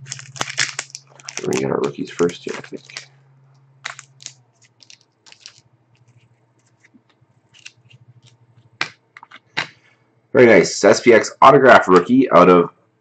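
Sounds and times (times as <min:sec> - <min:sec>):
cards rustling and flicking: 0:00.0 - 0:03.1, 0:03.8 - 0:09.8.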